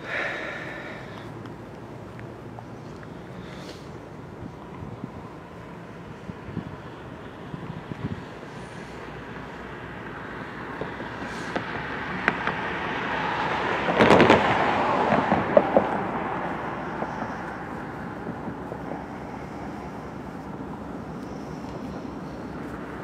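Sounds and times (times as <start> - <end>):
vehicle passing: 0.0 - 23.0.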